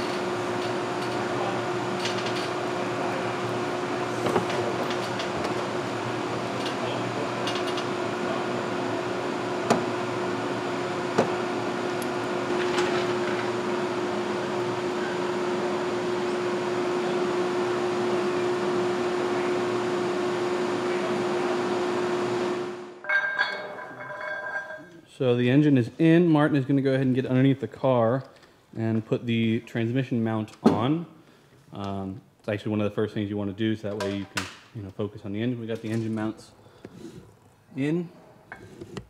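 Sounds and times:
steady machine hum: 0:00.0 - 0:25.6.

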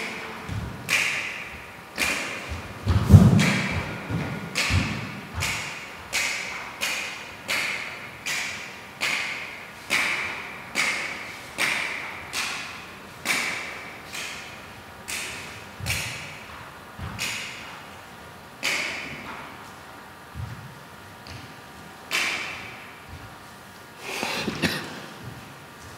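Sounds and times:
sharp percussive hits echoing: 0:00.8 - 0:17.7.

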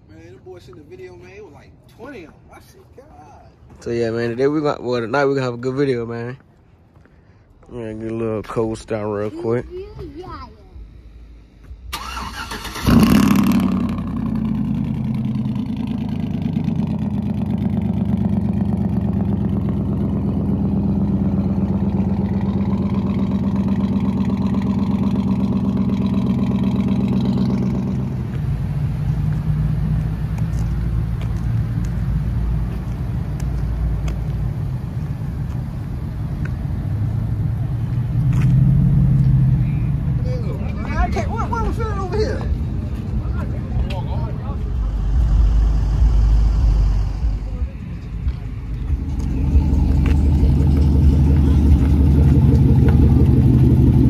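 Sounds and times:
car engine cold start and idling: 0:11.8 - 0:31.3, 0:43.3 - 0:54.0.

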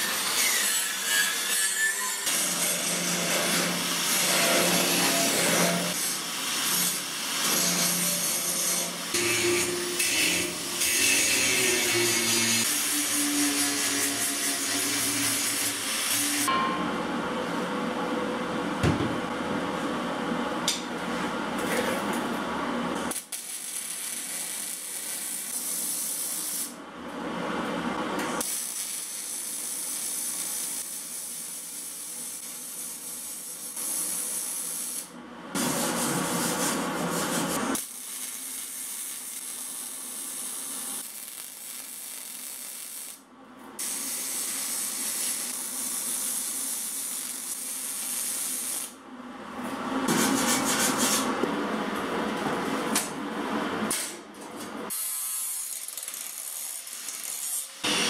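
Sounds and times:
welding arc crackling and hissing: 0:02.2 - 0:16.5, 0:23.1 - 0:26.8, 0:28.4 - 0:43.2, 0:43.8 - 0:49.0, 0:54.9 - 0:58.0.

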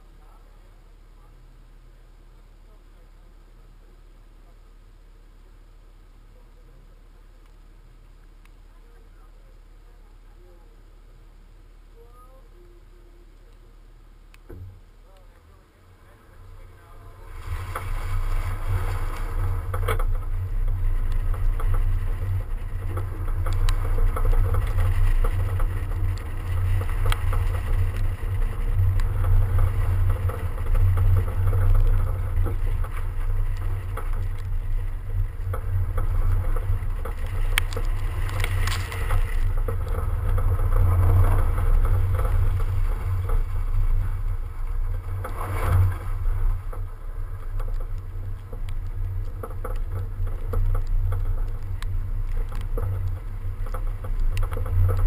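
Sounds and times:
tyre and road noise: 0:00.0 - 0:55.0.

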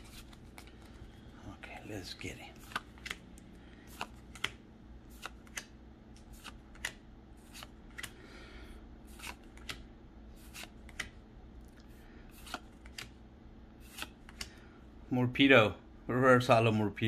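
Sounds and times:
faint steady hum: 0:00.0 - 0:17.0
trading cards snapping: 0:02.6 - 0:08.2, 0:09.1 - 0:11.2, 0:12.4 - 0:13.2, 0:13.8 - 0:14.6.

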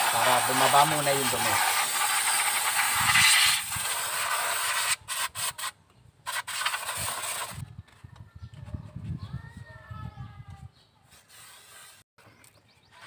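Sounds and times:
aerosol spray hissing: 0:00.0 - 0:05.7.

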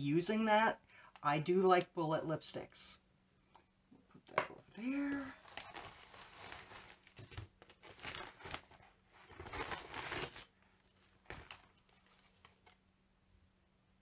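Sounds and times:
packaging rustling by hand: 0:05.3 - 0:12.8.

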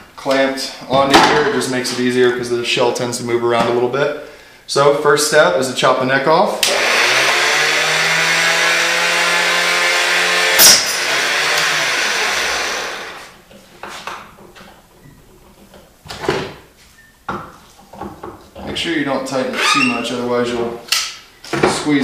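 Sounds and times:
chop saw motor whining: 0:06.6 - 0:13.4
saw blade cutting brass: 0:07.6 - 0:13.2.

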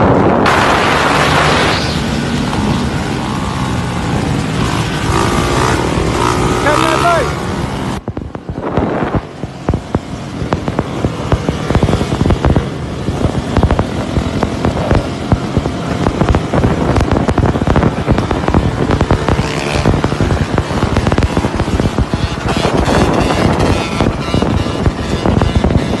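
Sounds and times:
dirt bike engines running: 0:00.0 - 0:26.0
sharp pops: 0:08.0 - 0:26.0.

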